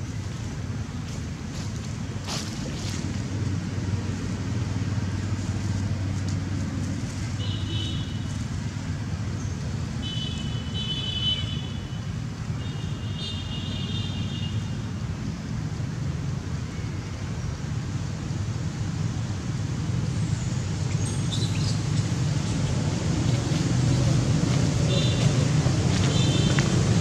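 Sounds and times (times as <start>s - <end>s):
low outdoor rumble: 0.0s - 7.5s, 17.6s - 27.0s.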